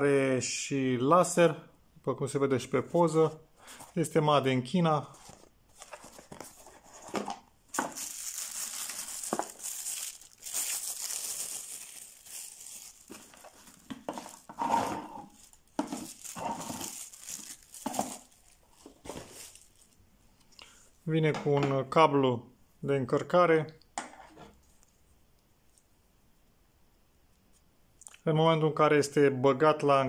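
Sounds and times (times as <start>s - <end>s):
packaging rustling and sliding: 3.1s - 4.1s, 5.0s - 20.0s.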